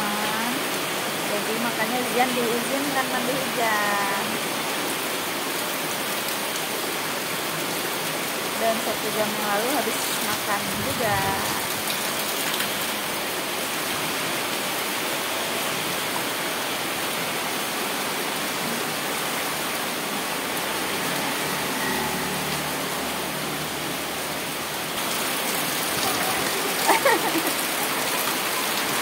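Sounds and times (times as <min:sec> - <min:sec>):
rain on concrete: 0:00.0 - 0:29.0.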